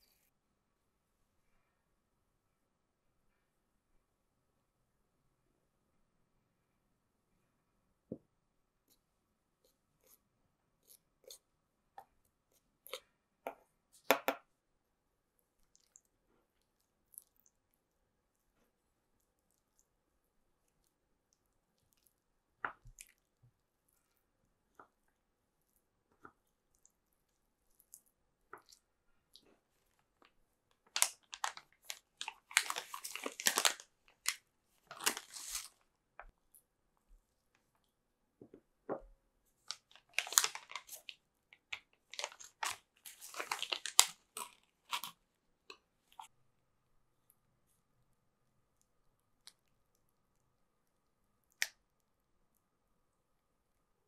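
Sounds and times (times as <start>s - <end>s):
plastic bag crinkling: 30.8s - 35.8s, 39.7s - 41.2s, 42.0s - 45.1s.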